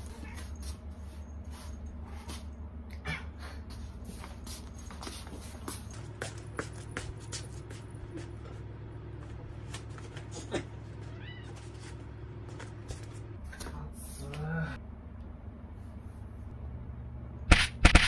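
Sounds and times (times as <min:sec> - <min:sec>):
steady low hum: 0:00.0 - 0:18.0
footsteps in slippers on hard floor: 0:03.7 - 0:13.3
cat meowing: 0:11.0 - 0:11.7.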